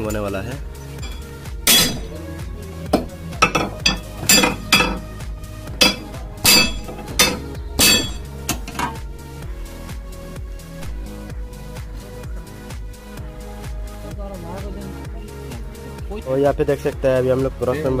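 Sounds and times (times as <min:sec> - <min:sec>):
music bed: 0:00.0 - 0:18.0
metal parts clinking and knocking: 0:01.0 - 0:02.1, 0:03.0 - 0:05.2, 0:05.8 - 0:09.1.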